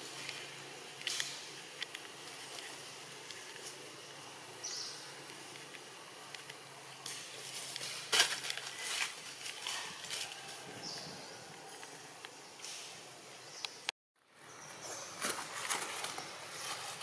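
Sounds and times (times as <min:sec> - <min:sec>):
crackly rustles and clicks: 0:00.1 - 0:04.0, 0:05.2 - 0:10.6, 0:15.2 - 0:17.0.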